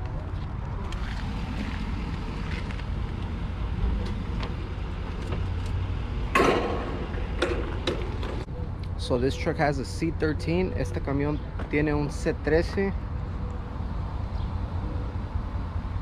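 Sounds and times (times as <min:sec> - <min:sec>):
truck hood clattering open: 0:06.3 - 0:08.4.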